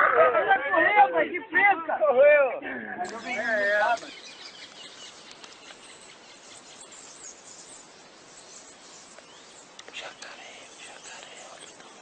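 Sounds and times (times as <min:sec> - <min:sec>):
faint high chirps and ticks: 0:03.0 - 0:12.0
steady hiss: 0:03.1 - 0:12.0.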